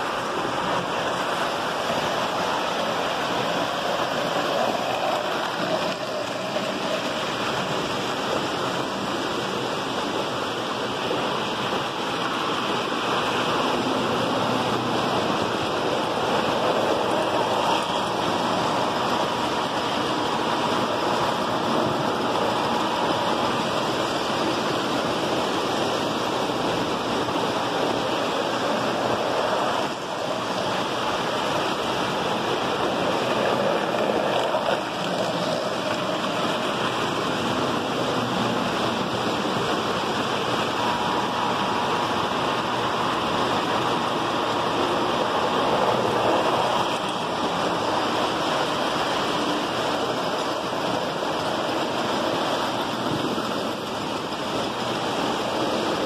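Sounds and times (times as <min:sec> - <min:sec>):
model trains rumbling on track: 0:00.0 - 0:56.0.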